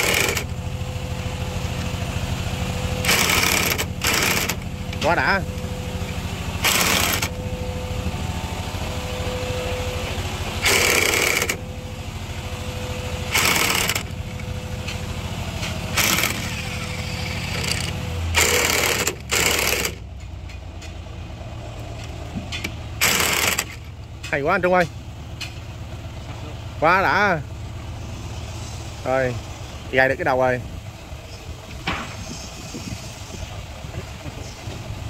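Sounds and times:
electric drill driving screws: 0.0s - 0.5s, 3.0s - 4.7s, 6.6s - 7.4s, 10.6s - 11.6s, 13.3s - 14.4s, 15.9s - 20.0s, 23.0s - 23.8s.

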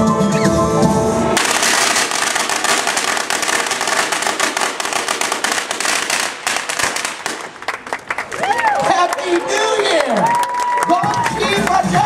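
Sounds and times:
music: 0.0s - 1.4s, 10.8s - 12.0s
firecrackers crackling: 1.4s - 9.2s.

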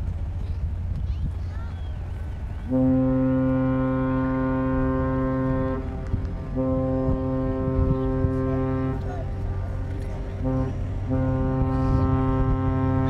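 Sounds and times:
deep ship horn blast: 2.6s - 13.0s.

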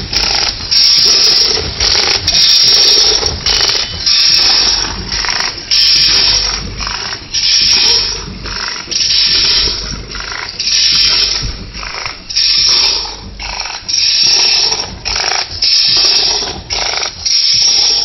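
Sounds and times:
packing machine rasping hiss: 0.0s - 18.0s.

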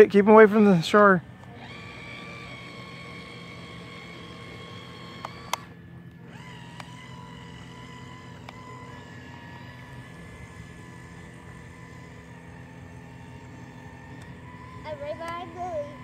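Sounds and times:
toy boat electric motors whining: 0.0s - 16.0s
sharp clicks: 5.0s - 7.0s.

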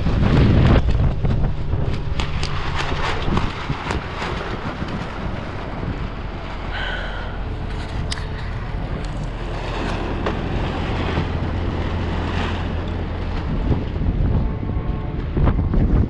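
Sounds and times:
plastic sheeting flapping: 0.0s - 6.7s
strong gusting wind on microphone: 0.0s - 16.0s.

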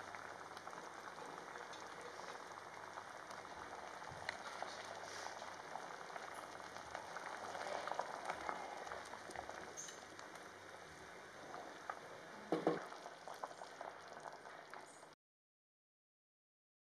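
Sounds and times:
liquid boiling and bubbling: 0.0s - 15.2s
loud knock: 12.5s - 12.8s.

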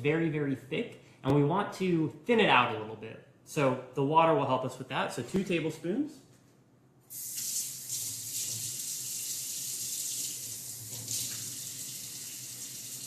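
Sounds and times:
faucet turned on: 7.1s - 13.0s
water running into steel sink: 7.1s - 13.0s.

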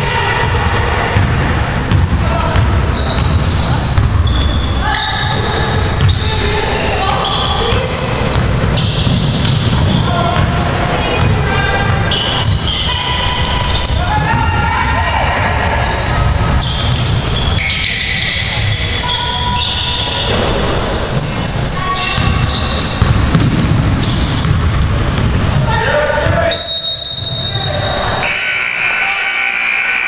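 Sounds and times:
players calling out: 0.0s - 23.3s
sneakers squeaking: 0.0s - 28.4s
basketball bouncing on wooden floor: 1.2s - 4.4s, 7.6s - 12.7s, 14.2s - 14.6s, 22.1s - 25.6s.

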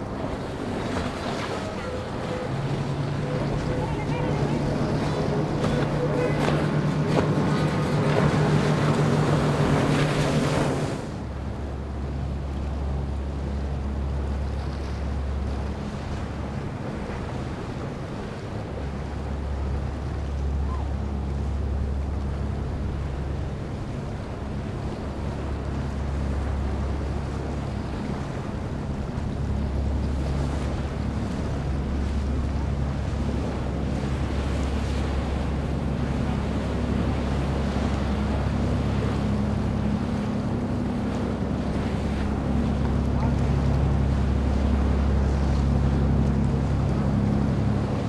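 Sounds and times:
motorboat engine drone: 0.0s - 48.0s
rush of boat wakes: 0.0s - 48.0s
rushing spray and water: 6.7s - 11.2s.

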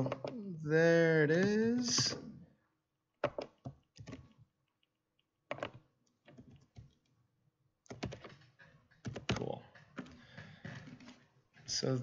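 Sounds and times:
computer keyboard typing: 7.9s - 9.6s.

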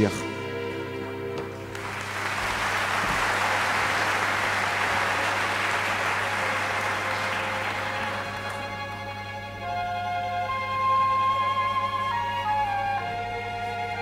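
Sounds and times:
large audience applauding: 1.6s - 9.4s.

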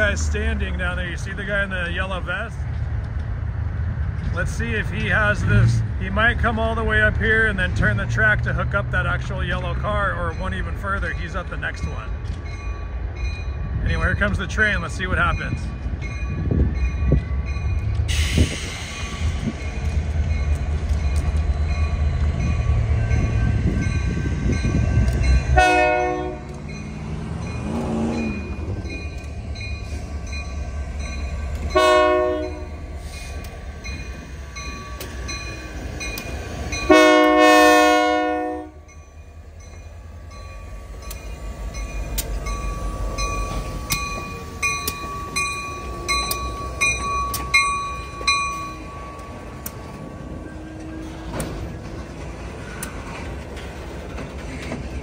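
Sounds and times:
diesel locomotive engine running: 0.0s - 55.0s
sharp clicks of train: 2.0s - 5.6s, 9.5s - 12.7s, 14.2s - 25.6s, 26.4s - 31.8s, 32.9s - 37.4s, 40.3s - 50.0s, 50.8s - 55.0s
train horn blasts: 25.5s - 26.6s, 31.7s - 32.8s, 36.8s - 38.9s.

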